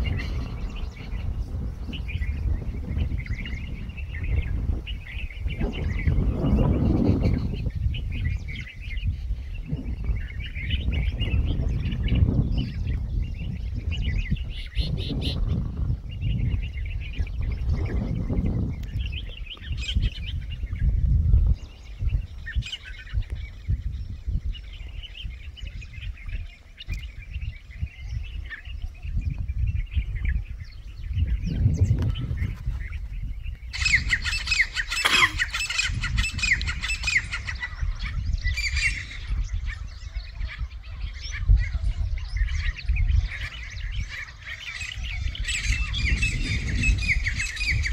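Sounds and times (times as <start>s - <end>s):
francolins calling: 0.0s - 21.0s, 21.6s - 47.9s
wind rumble on microphone: 0.0s - 47.9s.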